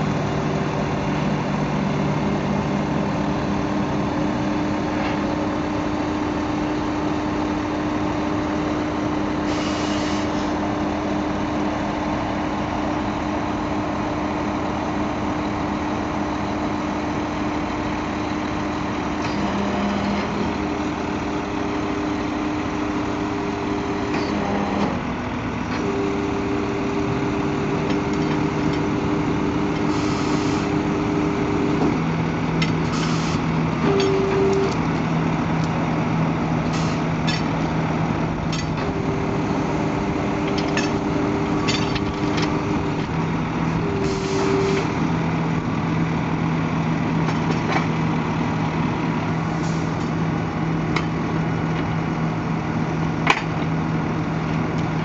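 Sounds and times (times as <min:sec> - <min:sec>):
hydraulic whine: 0:00.0 - 0:16.8, 0:18.4 - 0:32.0, 0:32.6 - 0:35.0, 0:36.6 - 0:45.2
diesel truck engine running: 0:00.0 - 0:55.0
short hisses: 0:09.5 - 0:10.5.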